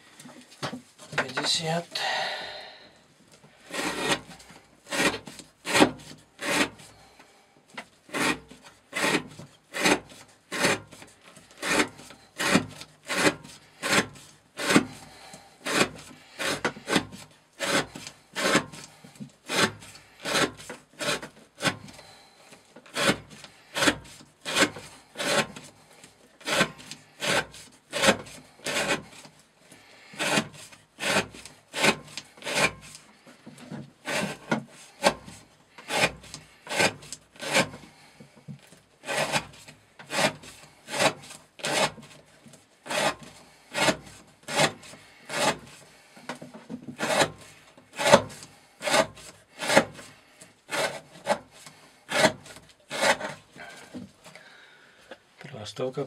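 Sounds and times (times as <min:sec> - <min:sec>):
knife shaving wooden stick: 0:03.5 - 0:54.4.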